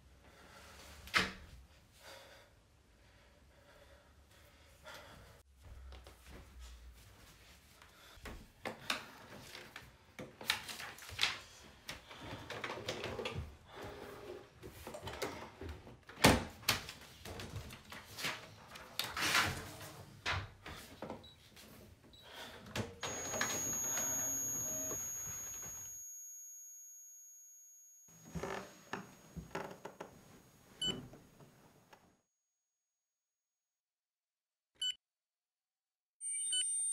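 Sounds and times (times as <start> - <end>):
thin high whine: 23.0 - 31.8.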